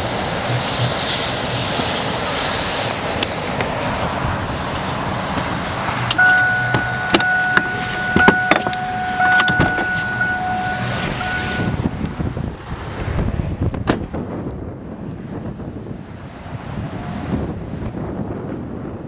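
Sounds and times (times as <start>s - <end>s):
storm wind on microphone: 0.0s - 19.0s
sharp clicks and knocks: 6.1s - 10.2s
steady high tone: 6.1s - 12.0s.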